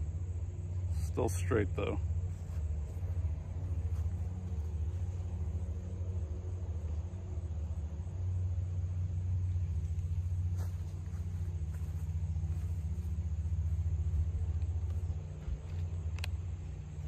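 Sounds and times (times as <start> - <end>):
faint click: 16.1 - 16.4.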